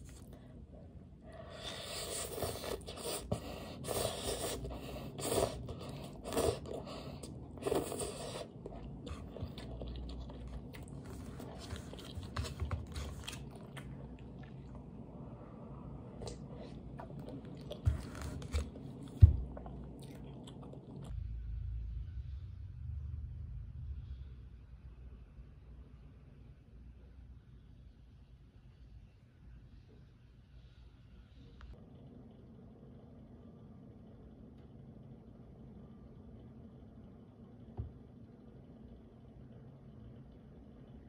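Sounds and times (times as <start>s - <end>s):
quiet chewing: 0.0s - 15.3s, 16.0s - 21.2s
noodles slurped: 1.4s - 14.9s.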